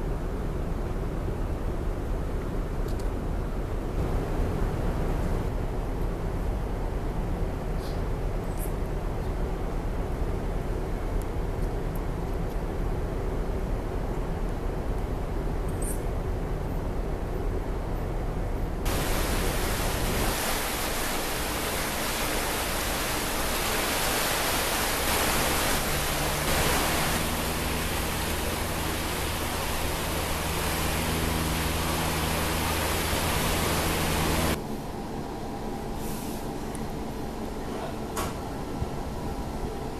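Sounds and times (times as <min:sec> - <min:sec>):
steady rushing noise: 0:18.8 - 0:35.4
ship engine drone: 0:18.8 - 0:39.9.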